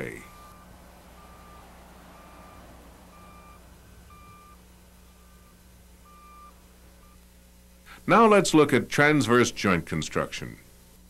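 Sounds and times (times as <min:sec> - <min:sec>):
vehicle reversing alarm beeping: 0:00.0 - 0:07.3.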